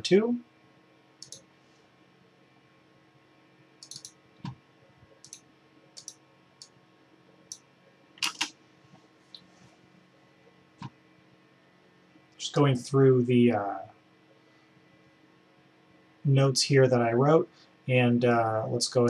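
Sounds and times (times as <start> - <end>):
mouse and keyboard clicks: 1.2 - 1.4, 3.8 - 4.6, 6.0 - 6.2, 8.2 - 8.5.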